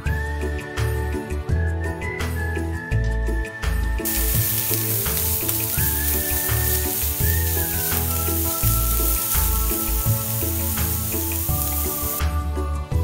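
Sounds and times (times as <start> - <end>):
background music with bass line: 0.4 - 13.0
carrots sizzling in frying pan: 4.0 - 12.2
chopsticks stirring in pan: 4.1 - 12.2.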